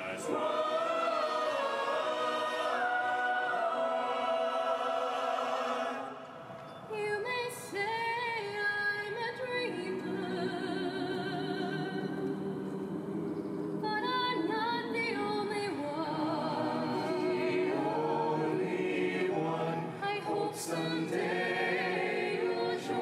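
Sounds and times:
voices singing in harmony: 0.0s - 23.0s
woman singing with vibrato: 6.9s - 12.2s, 13.8s - 17.5s, 19.9s - 23.0s.

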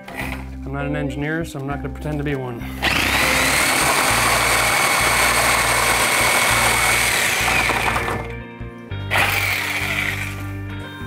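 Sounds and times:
reciprocating saw cutting wood: 2.8s - 8.2s, 9.1s - 10.4s.

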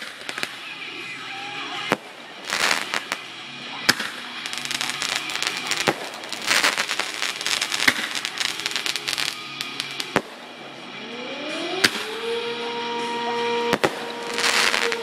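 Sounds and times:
firework bangs: 0.0s - 0.7s, 1.8s - 3.3s, 3.9s - 10.8s, 11.8s - 12.3s, 13.4s - 15.0s
fireworks crackling: 0.0s - 15.0s.

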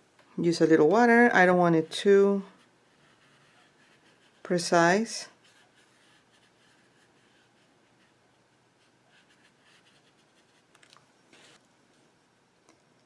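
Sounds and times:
paintbrush dabbing on paper: 2.0s - 10.7s.

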